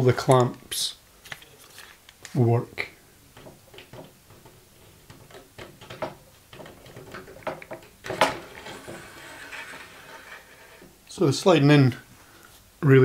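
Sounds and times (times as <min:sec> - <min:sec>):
clamp clicking and knocking on rail: 0:03.4 - 0:09.8.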